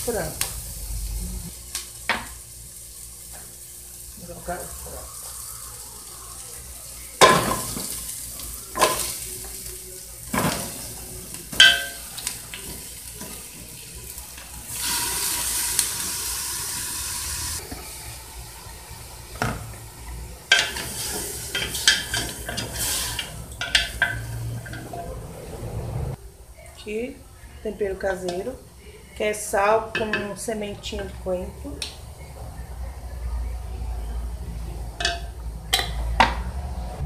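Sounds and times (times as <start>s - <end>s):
chicken sizzling in oil: 0.0s - 24.6s
wooden spoon stirring in pot: 17.5s - 25.0s.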